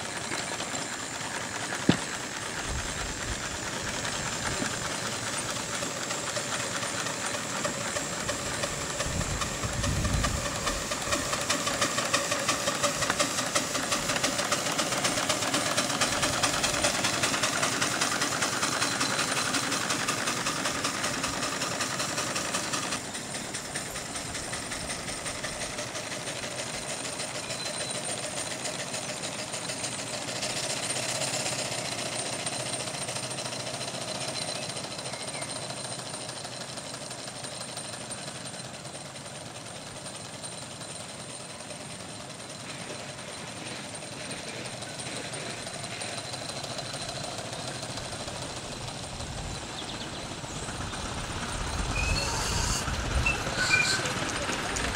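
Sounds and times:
steam engine exhaust beat: 0.0s - 54.9s.

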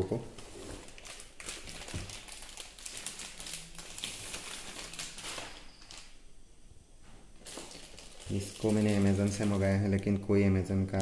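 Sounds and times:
cardboard packaging rustling: 0.4s - 6.1s, 7.4s - 10.2s.

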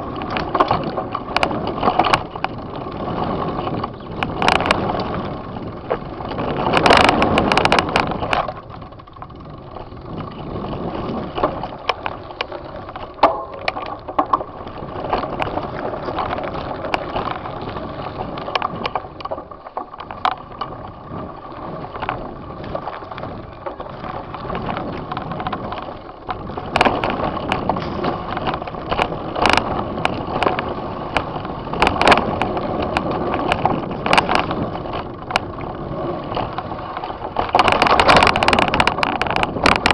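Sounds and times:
bike rattling: 0.0s - 39.9s
bike tyres rolling on dirt: 0.0s - 39.9s
sharp knocks over bumps: 10.2s - 21.0s.

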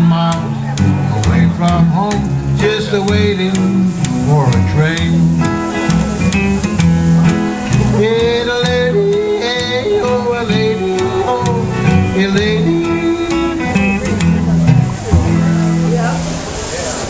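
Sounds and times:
plucked upright bass: 0.0s - 16.7s
acoustic guitar: 0.0s - 17.0s
person singing long notes: 7.7s - 15.9s.

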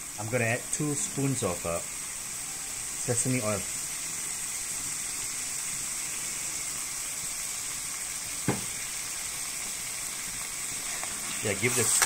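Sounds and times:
food sizzling in oil: 0.0s - 12.0s
sharp knock: 8.5s - 8.7s.

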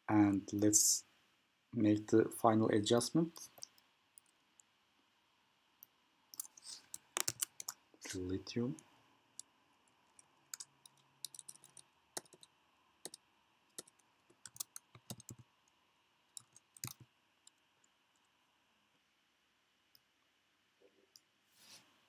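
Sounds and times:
keyboard typing: 6.4s - 7.8s, 10.1s - 15.4s, 16.4s - 17.1s
mouse clicks: 6.4s - 7.8s.

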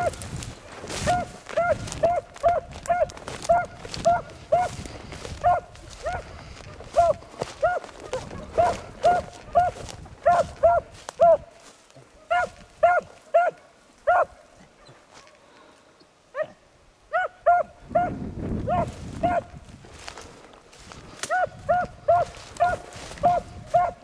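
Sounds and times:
beagle barking: 1.0s - 4.8s, 5.4s - 11.6s, 12.2s - 15.3s, 16.3s - 19.6s, 21.3s - 24.0s.

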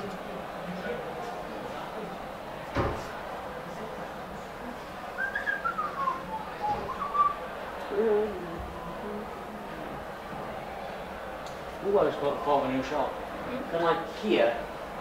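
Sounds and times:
person whistling: 5.2s - 7.4s.

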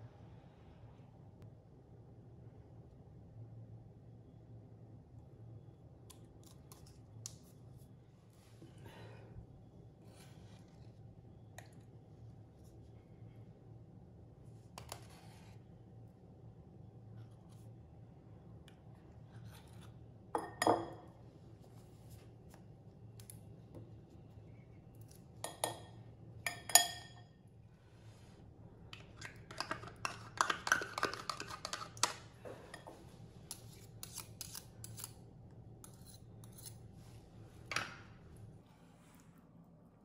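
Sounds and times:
metal spoon clinking on bowl: 26.5s - 27.3s.

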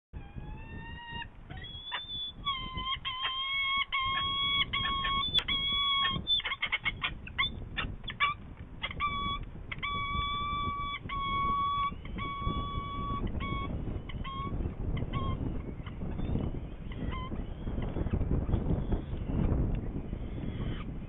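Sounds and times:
falcon drawn-out calls: 0.5s - 16.0s
falcon short calls: 1.1s - 15.4s.

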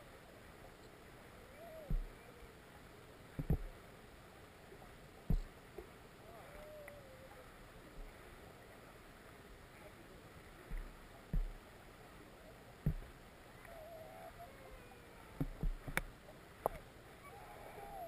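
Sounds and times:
muffled underwater water flow: 0.0s - 18.0s
low knocks and thumps: 1.8s - 2.2s, 3.4s - 3.8s, 5.2s - 5.5s, 10.6s - 11.6s, 12.8s - 13.2s, 15.4s - 16.1s.

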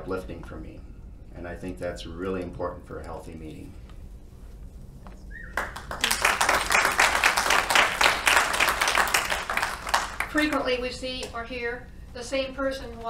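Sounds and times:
audience applauding: 5.4s - 10.6s.

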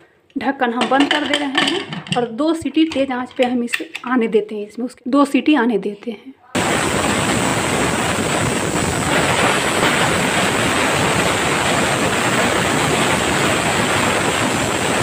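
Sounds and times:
pressure cooker steam hissing: 6.7s - 15.0s.

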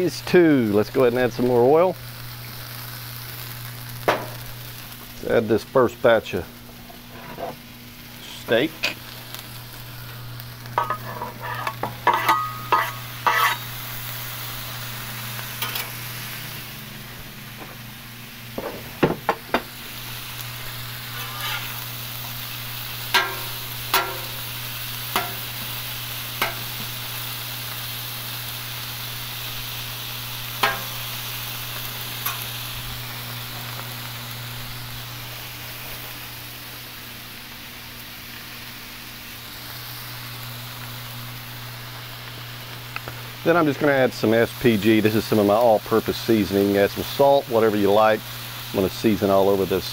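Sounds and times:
steak sizzling on griddle: 0.0s - 49.9s
metal spatula taps and scrapes: 10.8s - 13.6s, 23.2s - 24.3s.

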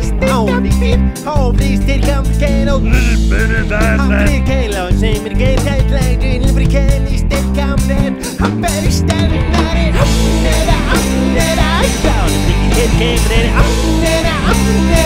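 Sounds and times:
rock band playing: 0.0s - 15.0s
steady drum beat: 0.7s - 7.5s.

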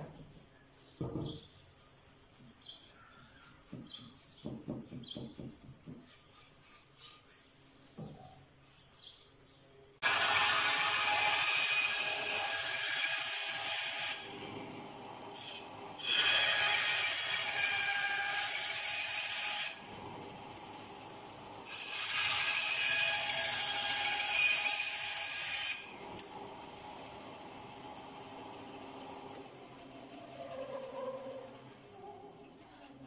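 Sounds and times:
band saw cutting wood: 10.0s - 26.4s.

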